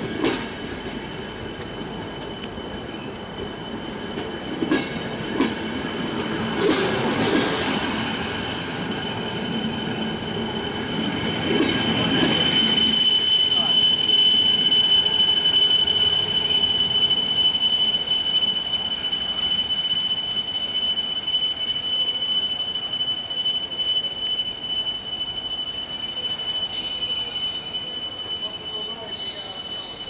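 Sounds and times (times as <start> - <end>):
train rumble: 0.0 - 20.6
train wheels squealing: 0.0 - 30.0.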